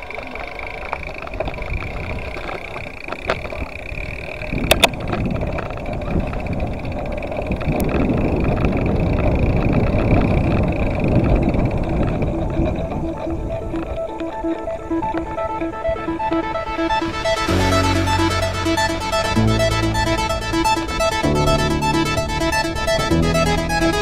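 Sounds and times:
bike clicks and rattles: 0.0 - 16.0
bike tyre rumble: 0.0 - 24.0
wind on microphone: 0.0 - 24.0.

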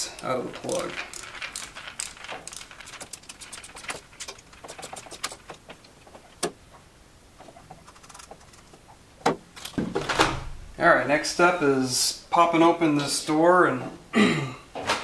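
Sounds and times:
screwdriver ticking and rattling: 0.0 - 6.5.

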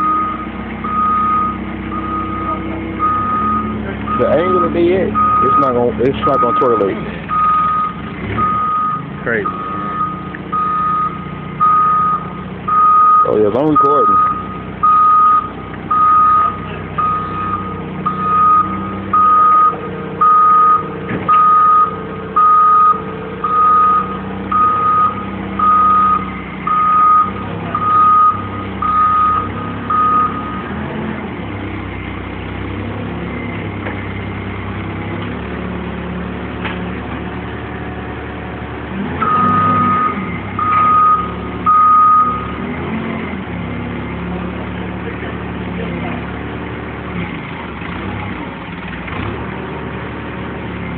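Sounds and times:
forklift backup alarm beeping: 0.0 - 30.9, 39.2 - 42.7
forklift engine running: 0.0 - 50.9.

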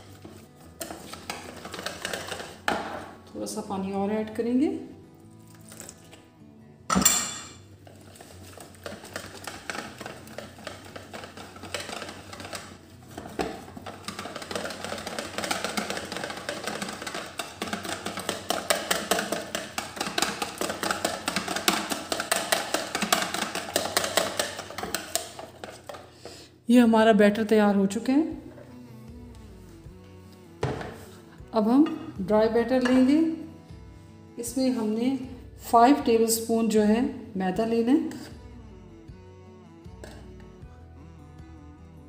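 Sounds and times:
whisk beating batter in plastic bowl: 0.0 - 2.7, 7.8 - 26.1.

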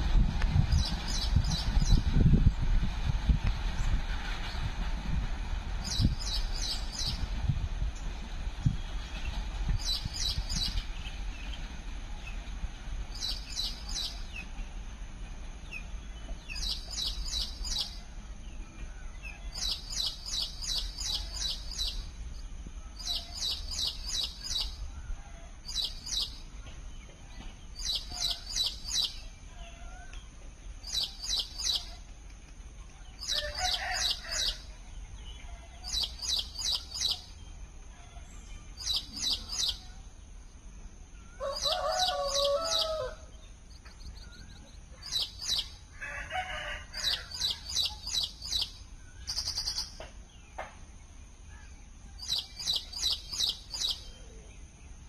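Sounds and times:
low steady rumble: 0.0 - 46.0
bird chirping: 13.1 - 14.6, 15.6 - 32.1, 33.0 - 37.6, 38.2 - 40.0, 41.1 - 45.8, 47.3 - 55.0.

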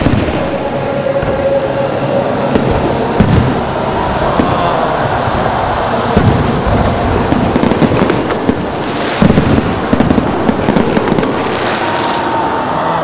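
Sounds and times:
fireworks crackling: 0.0 - 13.0
fireworks shells bursting: 6.1 - 12.7.

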